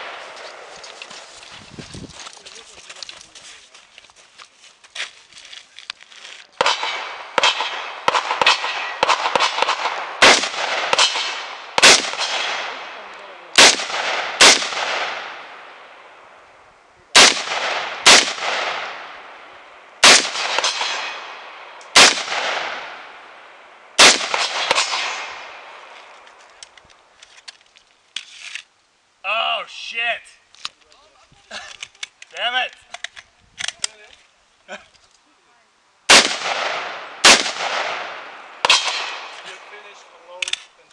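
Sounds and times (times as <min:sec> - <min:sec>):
rifle shots echoing: 0:00.0 - 0:00.8, 0:06.6 - 0:16.2, 0:17.1 - 0:26.0, 0:36.1 - 0:39.9.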